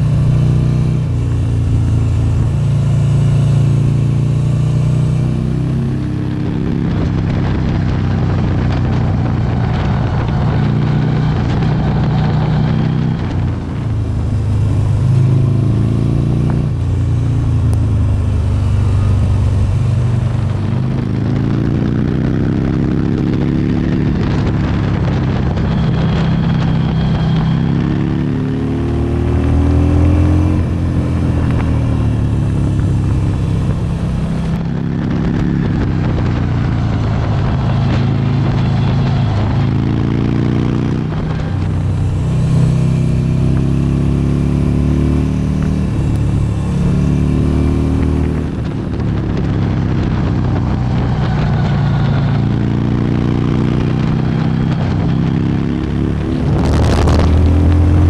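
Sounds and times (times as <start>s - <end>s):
motorcycle engine revving: 0.0s - 58.0s
wind and road noise: 0.0s - 58.0s.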